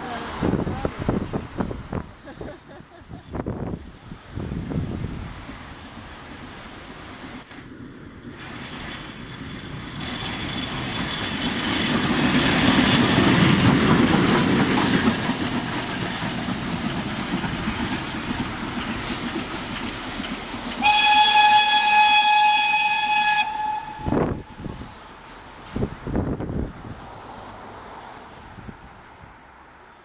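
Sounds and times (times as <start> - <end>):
steam locomotive running: 0.0 - 30.0
steam whistle blast: 20.8 - 24.6.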